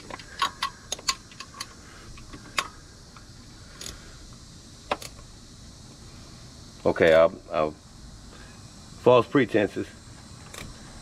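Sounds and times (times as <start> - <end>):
ratchet wrench clicking: 0.0 - 4.1, 4.8 - 5.2.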